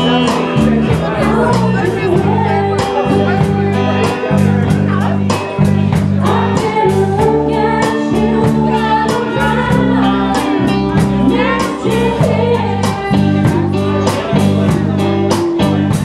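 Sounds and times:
drum kit beat: 0.0 - 16.0
electric bass: 0.0 - 16.0
person singing: 0.0 - 16.0.

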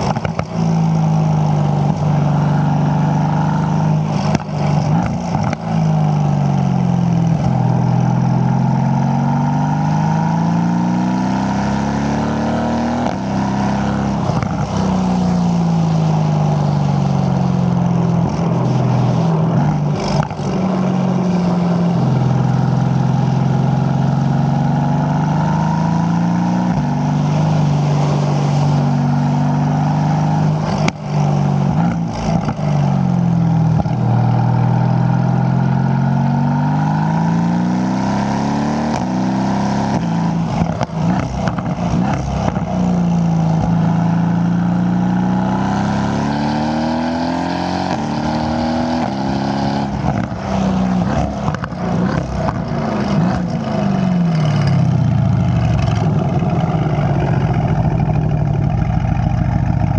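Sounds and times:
car engine exhaust revving: 0.0 - 59.9
exhaust crackles: 49.9 - 59.9.

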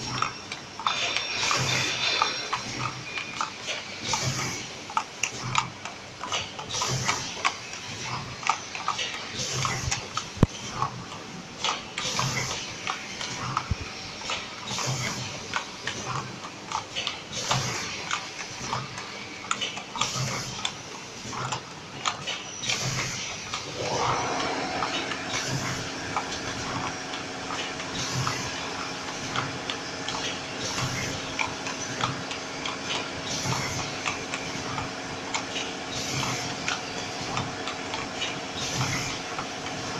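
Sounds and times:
packaging machine clicking and clacking: 0.0 - 23.9, 25.0 - 39.9
motor whining and humming: 23.5 - 32.8.

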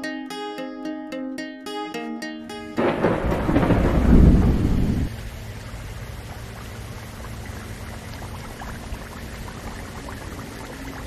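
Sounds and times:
steady rain hiss: 2.8 - 11.0
low steady hum: 3.0 - 11.0.

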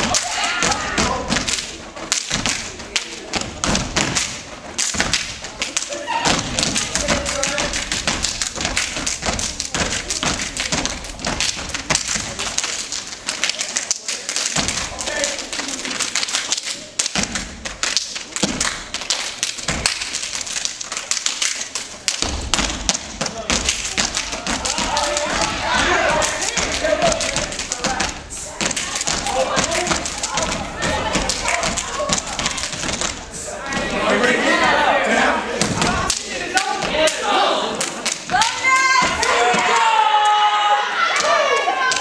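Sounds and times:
feet stomping on stage floor: 0.0 - 12.4
people clapping: 0.0 - 42.0.

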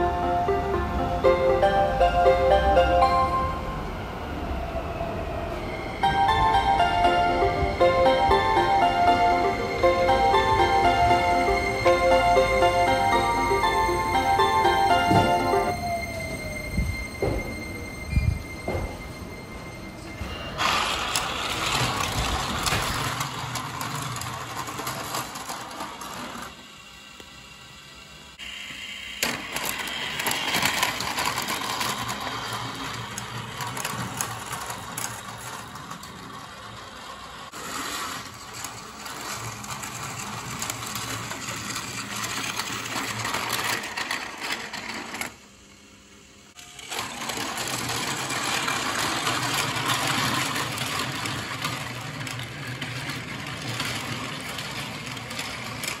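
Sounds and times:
wheels clicking on track joints: 19.9 - 26.6, 46.6 - 56.0
toy train motor whirring: 20.6 - 45.4, 46.5 - 56.0.

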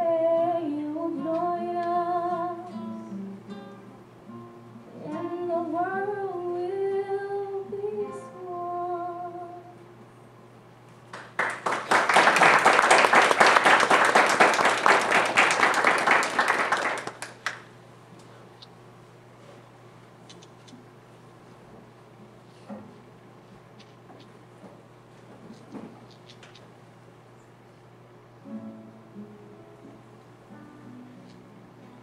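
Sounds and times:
woman singing: 0.0 - 3.4, 4.9 - 9.8
audience applauding: 11.1 - 17.7.

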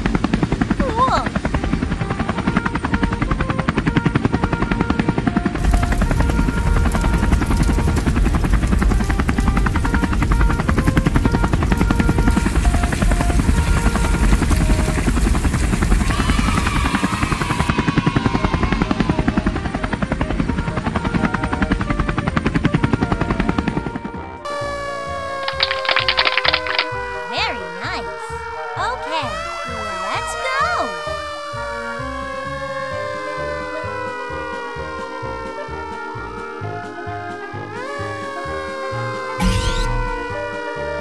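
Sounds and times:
light background music: 0.0 - 15.8, 18.0 - 41.0
machine chopping rattle: 25.5 - 26.9.

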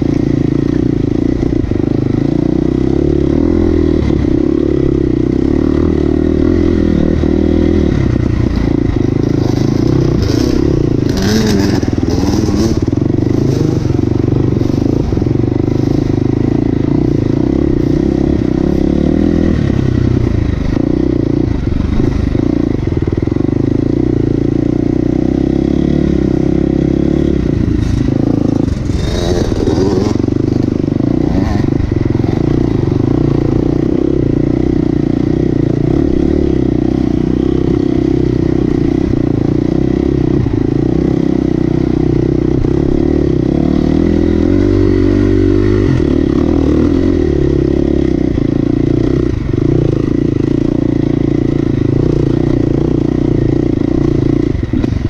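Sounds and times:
off-road vehicle engine running: 0.0 - 55.0
clatter and scraping: 27.6 - 33.1.

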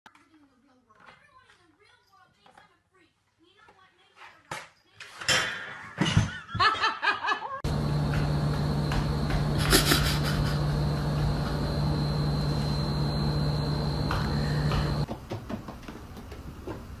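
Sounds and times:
steady machine hum: 7.6 - 15.1
thin high whine: 7.7 - 15.0.

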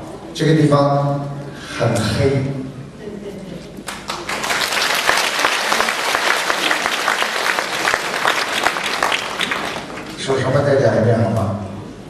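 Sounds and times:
audience applauding: 3.9 - 10.2.

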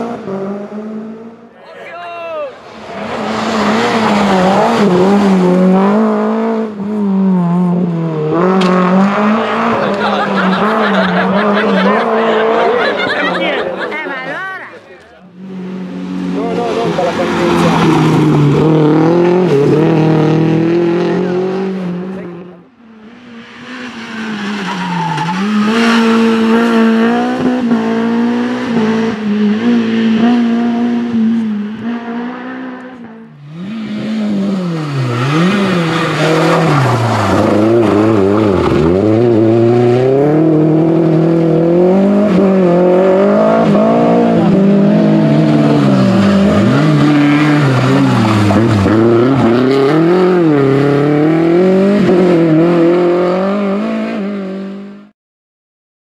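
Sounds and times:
rally car engines revving: 0.0 - 55.1.

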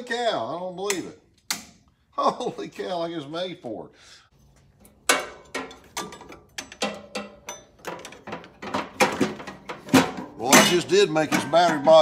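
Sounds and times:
metal bolts clinking and scraping: 4.4 - 12.0.

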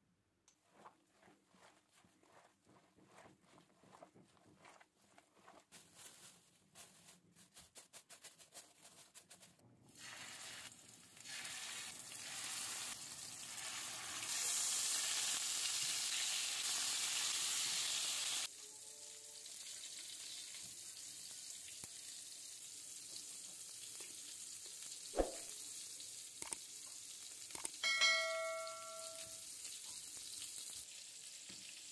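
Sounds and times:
cutlets sizzling as they fry: 9.9 - 18.5, 19.3 - 31.9.

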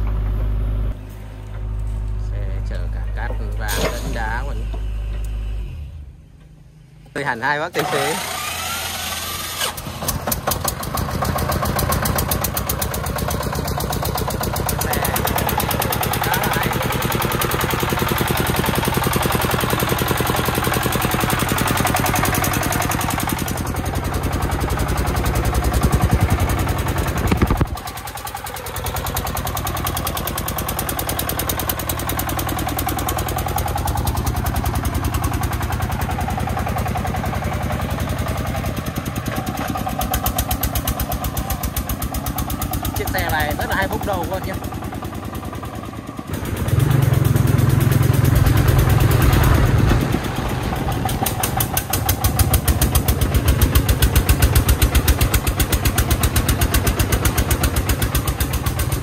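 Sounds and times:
diesel engine chugging: 0.0 - 59.0.

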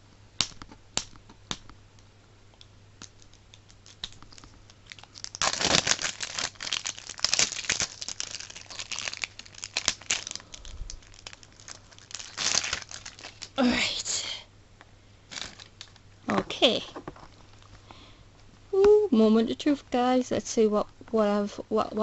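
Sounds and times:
plastic wrapping crinkling: 3.0 - 13.6, 15.3 - 17.8.

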